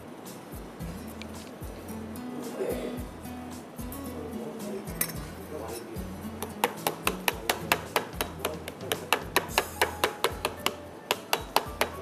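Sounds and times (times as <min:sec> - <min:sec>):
fork tapping through dough onto pan: 0:06.4 - 0:12.0.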